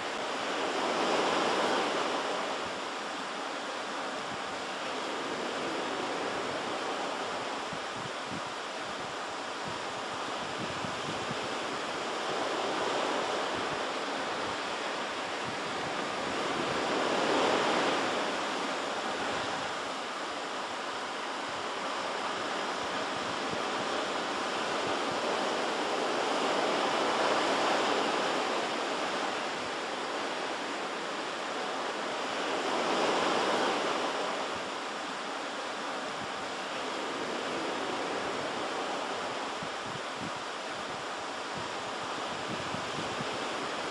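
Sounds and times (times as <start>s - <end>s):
surf washing onto shore: 0.0s - 43.9s
waves breaking: 0.0s - 43.9s.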